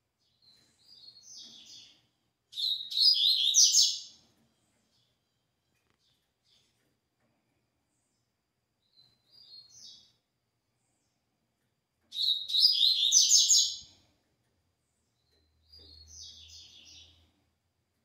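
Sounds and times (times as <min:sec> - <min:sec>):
bird singing high quick phrases: 0:02.5 - 0:04.2, 0:12.1 - 0:13.9.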